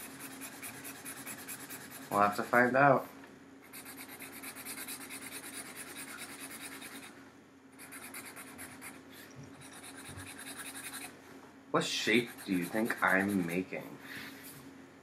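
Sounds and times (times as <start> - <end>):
marker scratching on paper: 0.0 - 2.5, 3.7 - 7.1, 7.8 - 11.1, 12.1 - 13.6.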